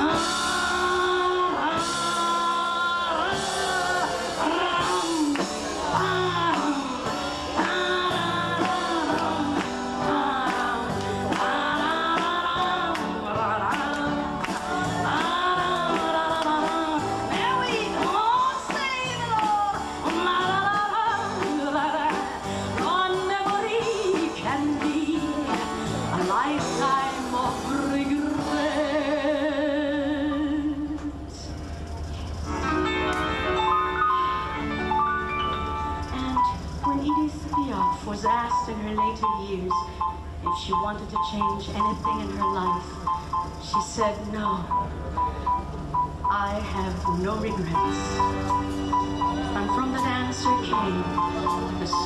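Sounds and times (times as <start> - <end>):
steady drum beat: 0.0 - 28.8
woman singing with vibrato: 0.0 - 31.6, 36.1 - 45.0, 46.3 - 48.2, 49.0 - 52.0
small cabaret band playing: 0.0 - 52.0.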